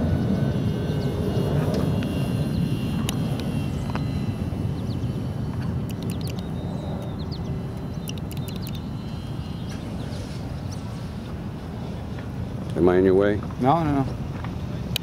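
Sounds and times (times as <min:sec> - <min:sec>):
model plane motor whine: 0:00.0 - 0:15.0
wind rumble on microphone: 0:00.0 - 0:15.0
short bird chirps: 0:05.9 - 0:10.9.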